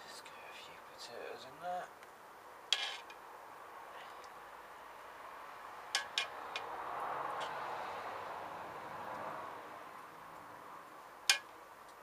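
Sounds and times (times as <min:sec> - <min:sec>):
soft steady hiss: 0:00.0 - 0:12.0
ladle clinking on pot: 0:06.0 - 0:06.3.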